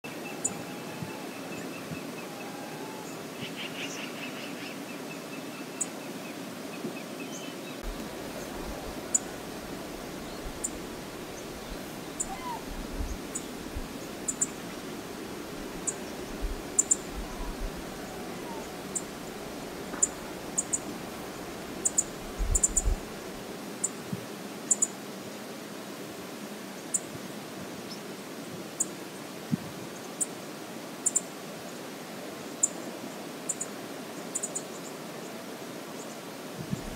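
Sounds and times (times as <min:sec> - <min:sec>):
rushing river water: 0:00.0 - 0:36.9
wind: 0:00.0 - 0:36.9
wind buffeting microphone: 0:07.8 - 0:14.2, 0:15.4 - 0:23.5, 0:36.6 - 0:36.9.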